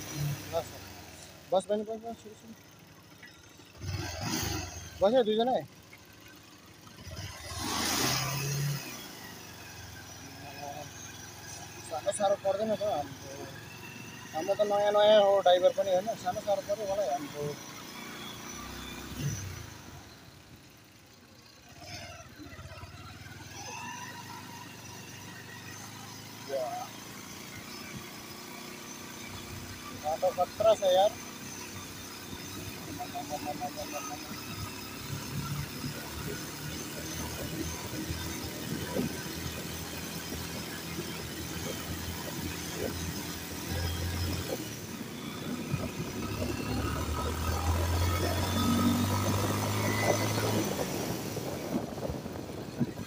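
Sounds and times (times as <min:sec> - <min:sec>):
motorcycle engine running: 0:08.9 - 0:53.0.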